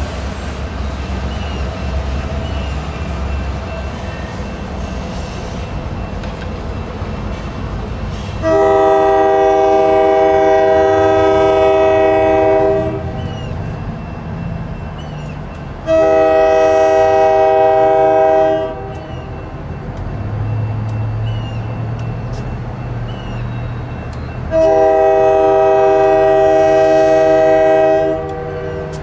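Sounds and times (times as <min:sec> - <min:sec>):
freight train rumbling: 0:00.0 - 0:29.0
locomotive air horn blast: 0:08.1 - 0:13.3, 0:15.8 - 0:19.4, 0:24.5 - 0:29.0.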